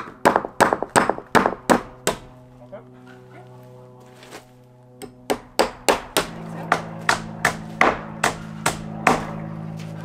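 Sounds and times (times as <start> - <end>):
hammer driving nails into wood: 0.0 - 2.2
low hum: 0.0 - 10.0.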